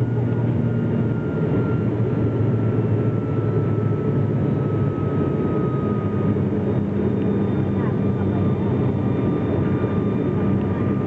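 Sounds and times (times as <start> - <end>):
aircraft engines rumbling: 0.0 - 11.0
propeller drone: 0.0 - 11.0.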